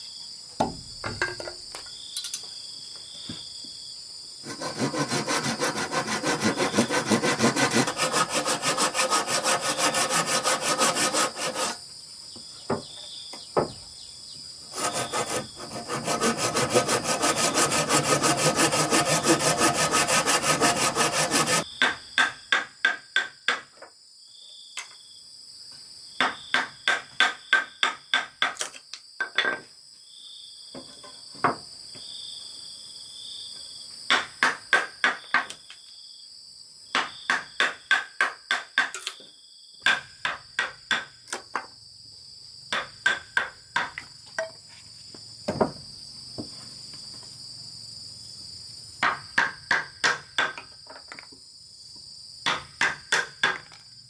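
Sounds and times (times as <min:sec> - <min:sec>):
insects chirring: 0:00.0 - 0:23.1.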